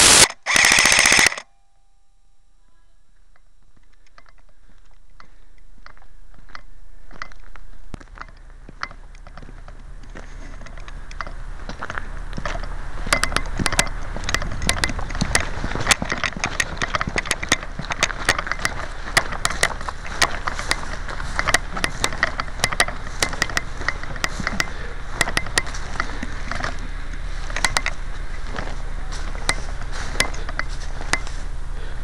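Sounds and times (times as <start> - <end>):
sharp cracks and clicks: 0.0 - 1.5
footsteps through dry grass: 3.6 - 32.0.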